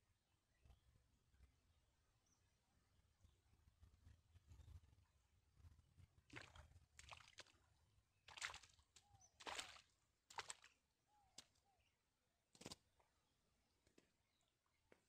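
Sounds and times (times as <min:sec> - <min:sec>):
water splashing and streaming: 0:06.3 - 0:07.6, 0:08.3 - 0:10.6.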